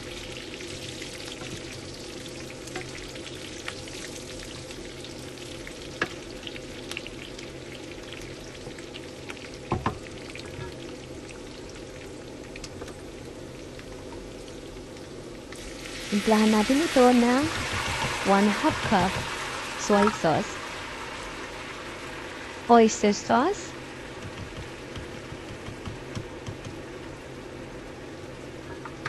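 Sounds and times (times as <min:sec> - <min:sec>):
meat sizzling in hot oil: 0:00.0 - 0:27.3
utensil knocking against pan: 0:17.5 - 0:19.3, 0:24.2 - 0:26.8.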